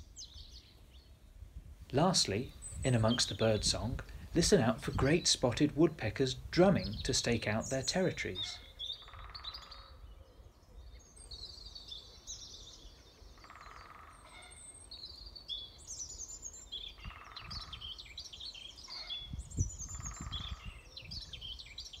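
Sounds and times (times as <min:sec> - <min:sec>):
songbirds singing: 0:00.0 - 0:22.0
woodpecker drumming: 0:02.0 - 0:10.0.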